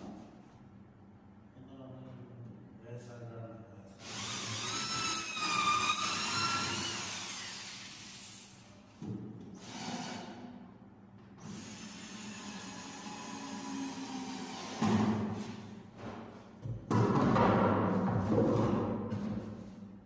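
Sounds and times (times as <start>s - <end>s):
cordless drill driving screws: 4.0s - 7.9s.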